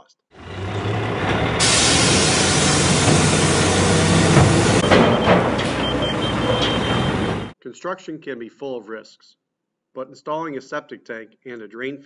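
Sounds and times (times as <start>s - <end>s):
loader diesel engine running: 0.4s - 7.6s
loud hiss: 1.6s - 4.9s
faint broken high beep: 4.8s - 7.3s.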